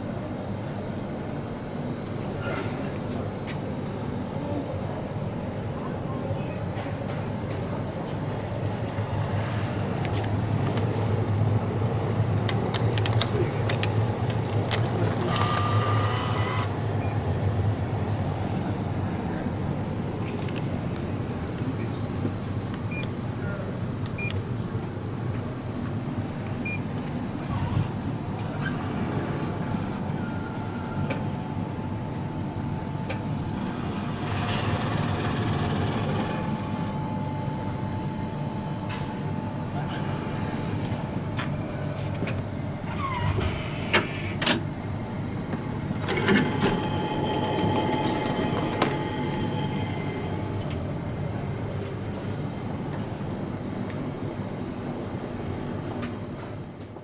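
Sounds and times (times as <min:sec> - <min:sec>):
motor whine: 0:08.6 - 0:18.8, 0:27.0 - 0:54.0.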